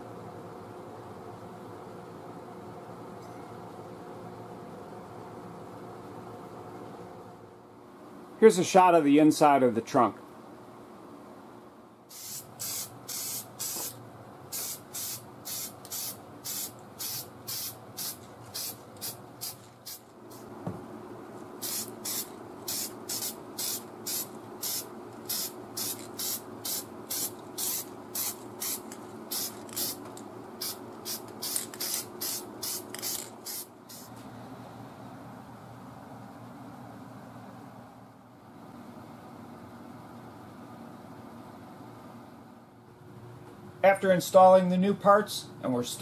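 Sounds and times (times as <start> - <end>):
steady low hum: 0.0 - 46.0
aerosol spray can hissing: 12.1 - 20.5, 21.6 - 34.1.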